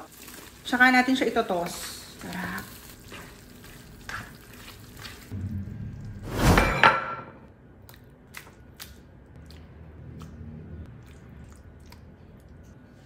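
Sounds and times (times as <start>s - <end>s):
spatula stirring food in a wok: 0.0s - 5.4s.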